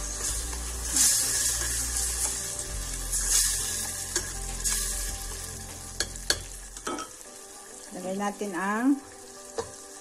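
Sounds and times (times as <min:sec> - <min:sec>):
spatula stirring: 0:00.0 - 0:05.2
sauce sizzling in a pot: 0:00.0 - 0:10.0.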